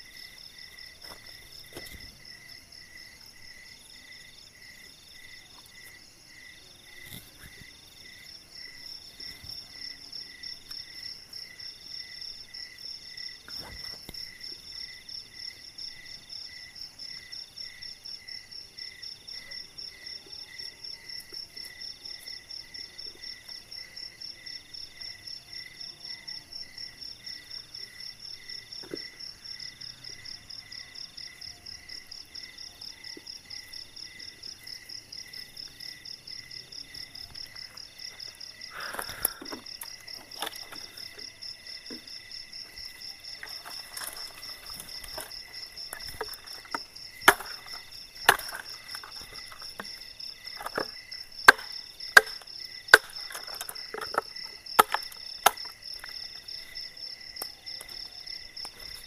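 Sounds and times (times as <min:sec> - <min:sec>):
night insects chirping: 0:00.0 - 0:59.0
wood being chopped: 0:43.4 - 0:56.2.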